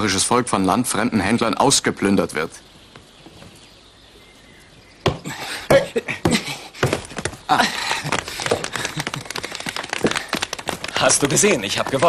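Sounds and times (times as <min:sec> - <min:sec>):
man panting: 0:05.2 - 0:10.5
sharp knocks and clacks: 0:08.0 - 0:12.0.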